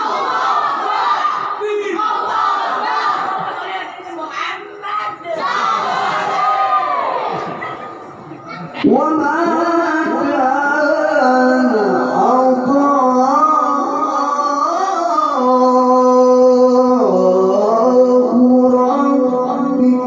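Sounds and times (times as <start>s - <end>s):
man reciting melodically: 1.5s - 2.1s, 8.8s - 20.0s.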